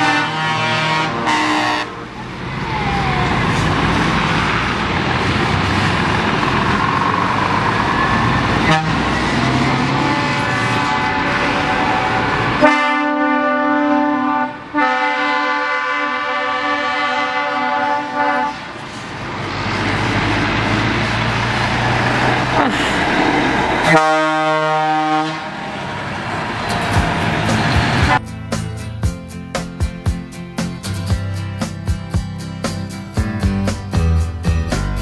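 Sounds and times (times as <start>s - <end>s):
truck air horns: 0.0s - 5.0s, 7.7s - 19.0s, 23.8s - 25.6s, 26.7s - 28.2s
trucks passing: 0.0s - 35.0s.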